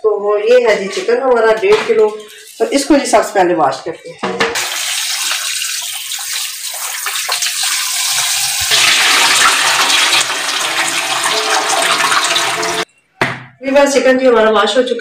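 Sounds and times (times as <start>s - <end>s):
running water: 1.8s - 3.3s, 4.6s - 12.9s.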